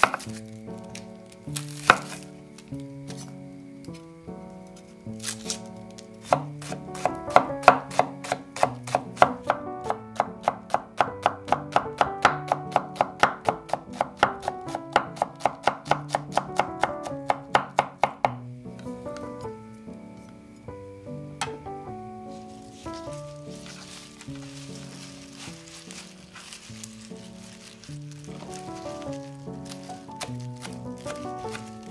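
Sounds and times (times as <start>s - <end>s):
knife chopping on wooden board: 0.0s - 0.2s, 1.7s - 2.2s, 6.2s - 18.4s.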